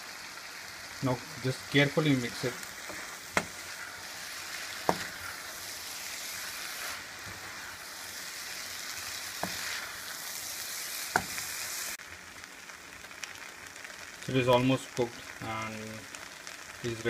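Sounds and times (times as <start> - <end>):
food sizzling in a pan: 0.0 - 17.0
spatula knocking on pan: 2.8 - 3.6, 4.8 - 5.2, 11.1 - 11.4.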